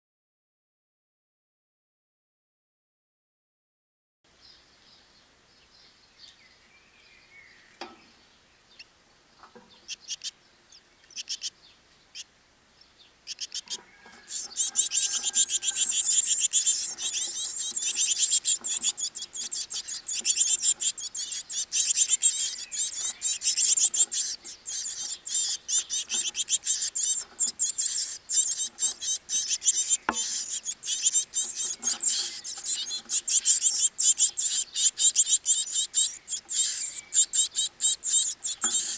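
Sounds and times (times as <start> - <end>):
nestlings cheeping: 13.3 - 38.9.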